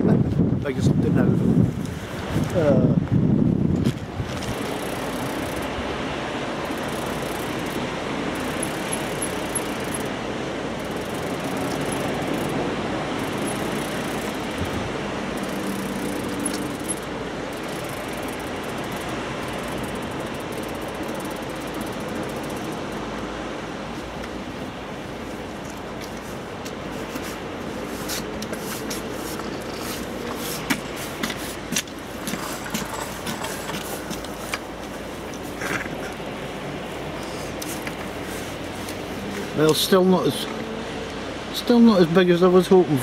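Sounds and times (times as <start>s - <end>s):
wind noise on microphone: 0.0s - 23.1s
sea: 0.0s - 43.0s
wind: 0.0s - 43.0s.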